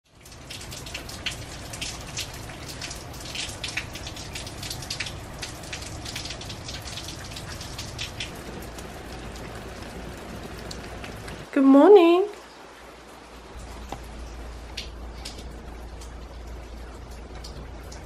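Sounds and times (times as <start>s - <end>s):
raindrops ticking: 0.0s - 18.0s
rain hiss: 0.1s - 18.0s
low steady rumble: 12.8s - 18.0s.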